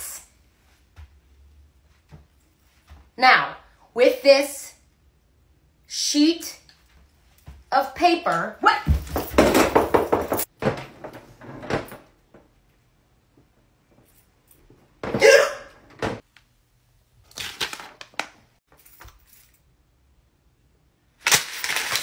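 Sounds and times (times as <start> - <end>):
knock on a door: 8.9 - 10.5
door being opened: 8.9 - 12.2, 15.0 - 16.2.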